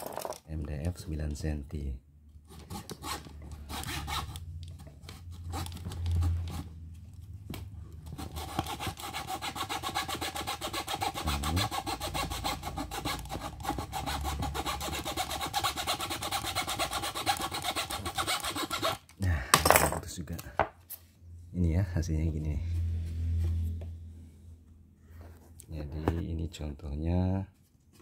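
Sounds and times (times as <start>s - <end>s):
fret saw cutting board: 8.0s - 19.0s.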